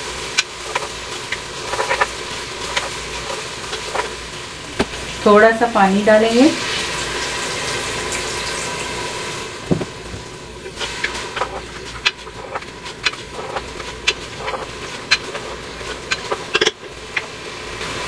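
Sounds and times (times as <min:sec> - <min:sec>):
water sizzling in hot oil: 0:00.0 - 0:18.0
wooden spoon knocking and scraping pot: 0:00.6 - 0:04.2, 0:09.7 - 0:17.3.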